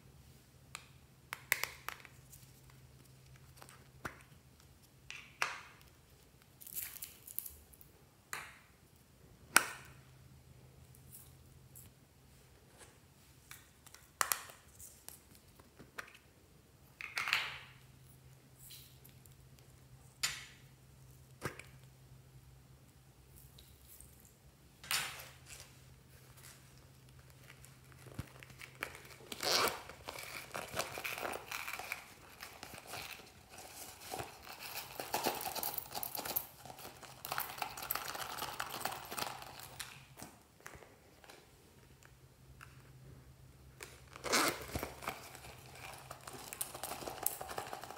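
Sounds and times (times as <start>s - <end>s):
vinyl pouch crinkling: 25.2s - 40.1s, 43.9s - 47.9s.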